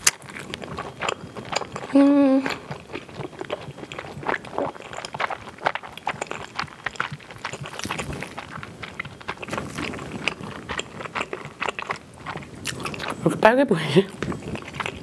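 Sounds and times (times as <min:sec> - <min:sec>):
chewing with wet mouth clicks: 0:00.0 - 0:13.4, 0:14.1 - 0:15.0.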